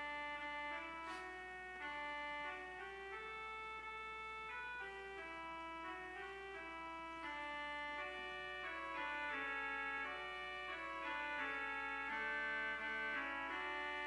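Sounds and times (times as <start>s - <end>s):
church organ playing chords: 0.0s - 14.0s.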